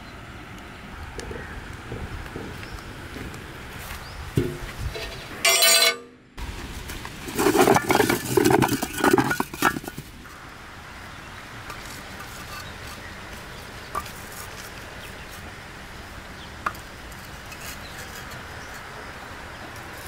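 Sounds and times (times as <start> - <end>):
ringing clang: 5.4 - 6.3
bricks clattering together: 7.3 - 10.2.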